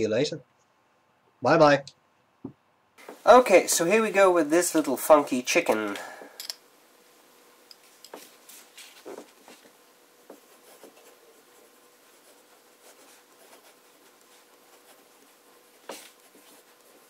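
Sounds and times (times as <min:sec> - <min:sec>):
faint steady hum: 0:00.0 - 0:17.0
fountain pen scratching on paper: 0:08.6 - 0:17.0.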